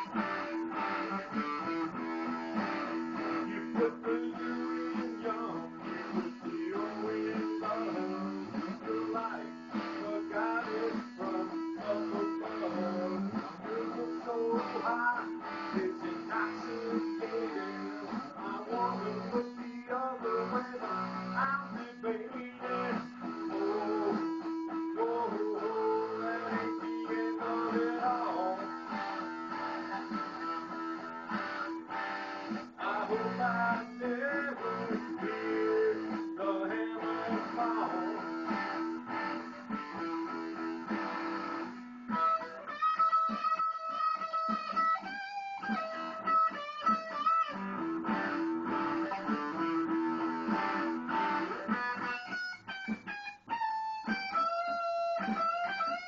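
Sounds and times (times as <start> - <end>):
electric guitar solo: 0.0 - 56.0.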